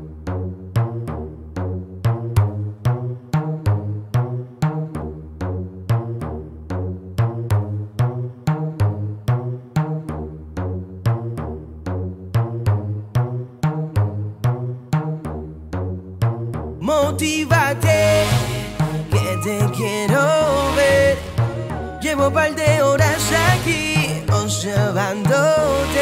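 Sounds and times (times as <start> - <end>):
reggaeton beat with melody: 16.8 - 26.0.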